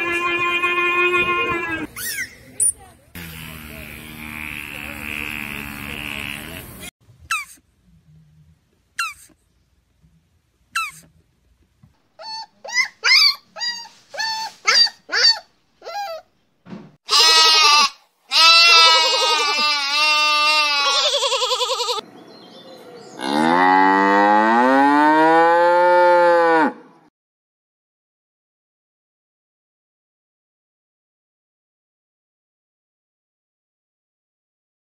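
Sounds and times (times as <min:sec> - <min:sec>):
young goat bleating: 0:00.0 - 0:01.9, 0:17.1 - 0:22.0
short high squeaks: 0:01.1 - 0:02.8
cattle mooing: 0:23.2 - 0:26.8.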